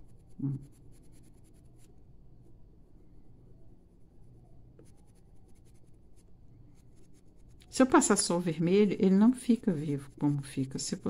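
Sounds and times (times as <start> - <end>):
pencil scratching on paper: 0.0 - 1.9, 4.8 - 11.0
person speaking: 7.7 - 11.0.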